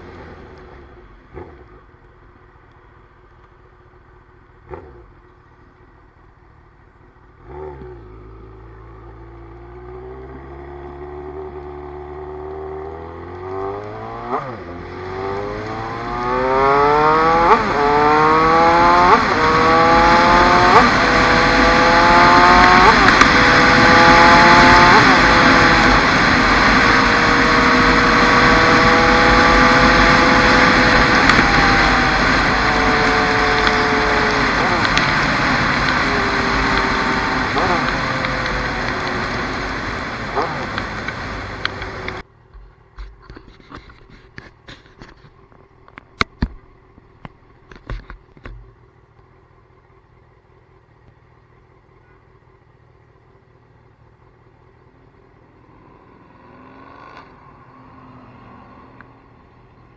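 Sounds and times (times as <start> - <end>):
motorcycle engine accelerating: 0.0 - 42.3, 54.8 - 59.9
gear upshifts: 13.3 - 42.2.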